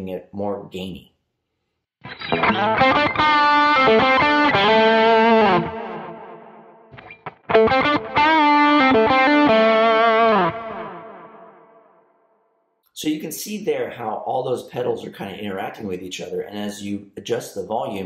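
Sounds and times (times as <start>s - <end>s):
distorted electric guitar chords: 2.0s - 12.0s.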